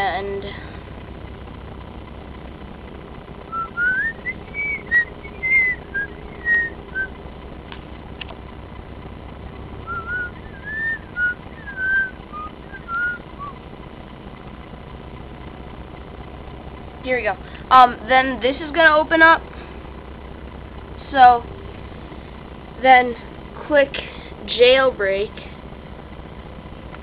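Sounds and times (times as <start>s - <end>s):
low steady hum: 0.0s - 27.0s
person whistling a tune: 3.5s - 7.1s, 9.9s - 13.5s.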